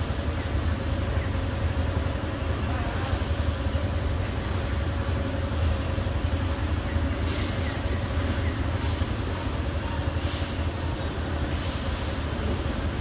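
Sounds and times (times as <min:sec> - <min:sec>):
short soft hisses: 0:07.2 - 0:07.8, 0:10.2 - 0:10.7.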